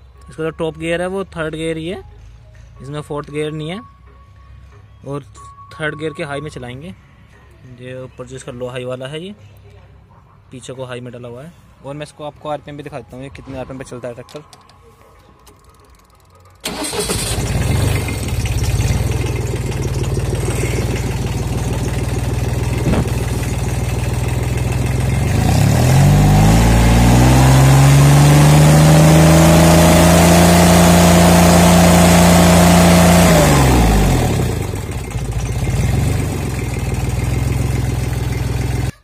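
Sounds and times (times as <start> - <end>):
tractor diesel engine idling and revving: 16.6 - 39.0.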